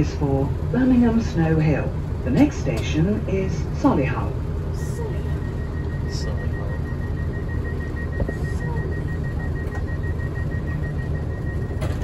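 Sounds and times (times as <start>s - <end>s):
diesel train idling rumble: 0.0s - 12.0s
rapid high-pitched door alarm beep: 5.2s - 12.0s.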